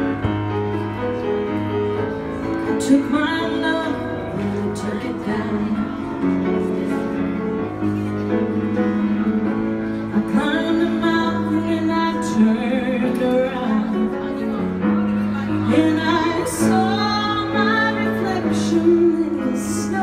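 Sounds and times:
piano accompaniment: 0.0s - 20.0s
woman singing a ballad: 2.8s - 6.1s, 10.2s - 14.4s, 15.6s - 20.0s.

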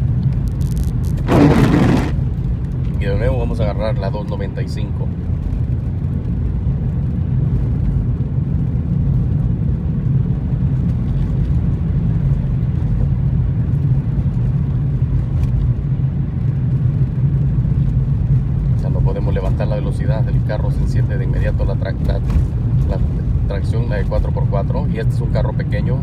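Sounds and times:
tyre and road noise: 0.0s - 3.7s, 21.4s - 24.2s
car engine running: 0.5s - 3.2s.

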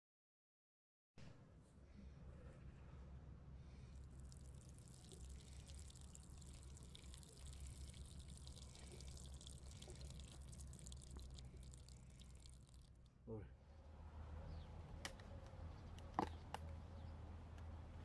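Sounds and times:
water trickling and dripping: 4.0s - 13.2s.

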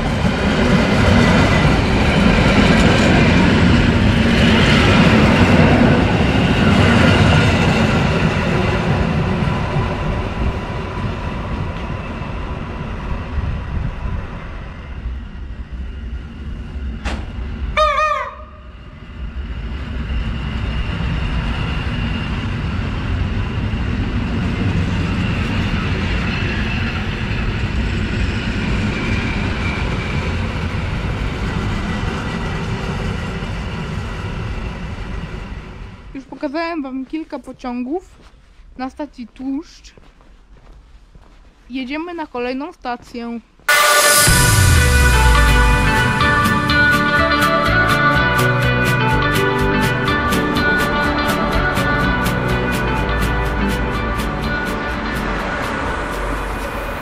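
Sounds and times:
train rumble and rail noise: 0.0s - 57.0s
brief loud pitched sound: 43.7s - 50.9s.

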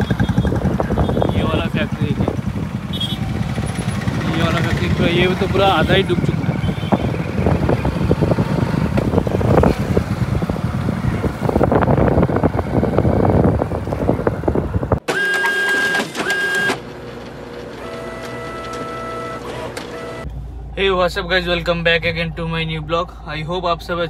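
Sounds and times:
rough rumbling with crackles: 0.0s - 15.0s.

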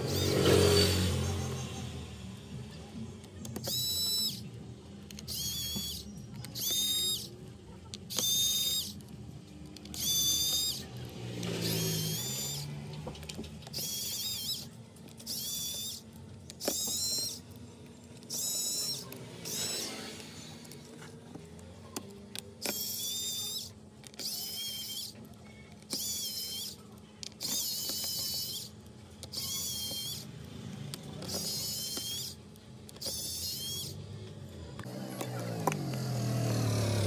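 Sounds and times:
electric screwdriver whirring: 0.0s - 1.6s, 3.4s - 4.5s, 5.1s - 17.6s, 18.2s - 20.9s, 22.4s - 25.2s, 25.8s - 30.3s, 30.9s - 34.0s.

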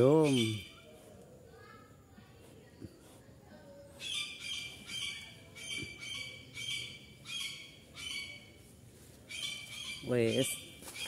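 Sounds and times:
bird squawking: 4.0s - 8.5s.

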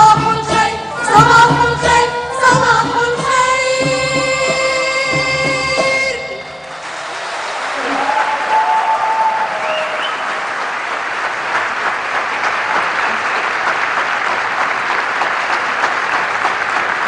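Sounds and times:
audience applauding: 6.6s - 17.0s.

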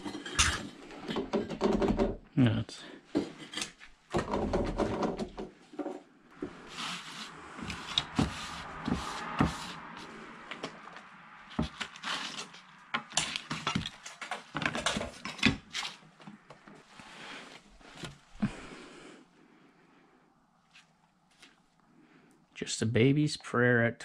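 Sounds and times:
objects knocking and clicking: 0.0s - 2.2s, 3.1s - 6.6s, 11.5s - 15.8s
sleeves sliding across table: 6.4s - 10.8s.

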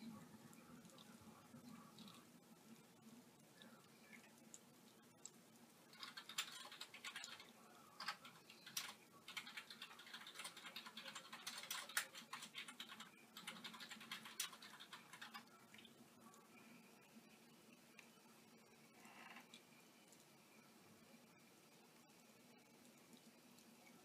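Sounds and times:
rain tapping: 0.0s - 16.4s.

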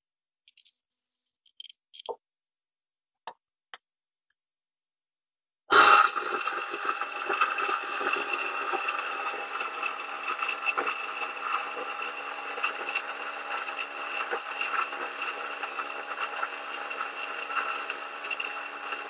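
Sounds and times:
coffee grinder grinding beans: 5.7s - 19.0s.

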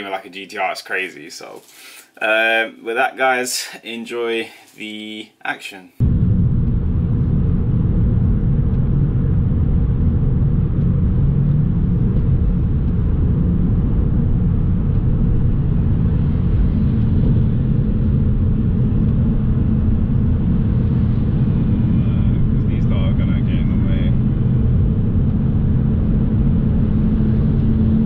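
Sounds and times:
car engine and road noise: 6.0s - 28.0s.

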